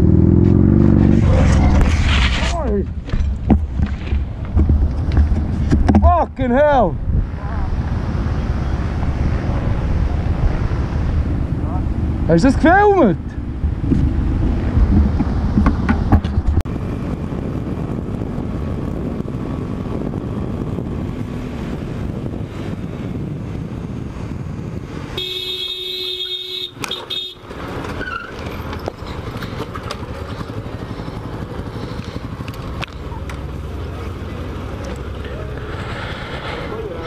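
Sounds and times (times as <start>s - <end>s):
motorcycle engine: 0.0s - 6.2s, 7.2s - 37.0s
vehicle horn: 25.2s - 27.5s.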